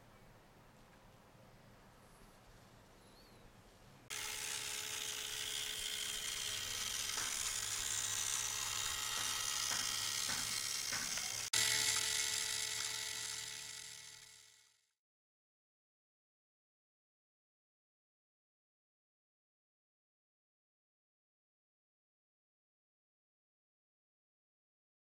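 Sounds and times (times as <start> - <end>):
small electric motor whirring: 4.1 - 14.9.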